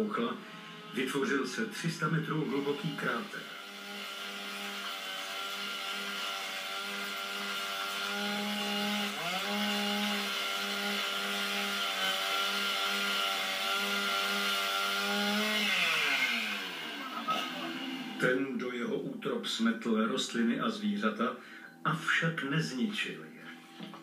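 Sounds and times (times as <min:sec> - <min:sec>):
motor saw cutting rock: 0:00.0 - 0:18.3.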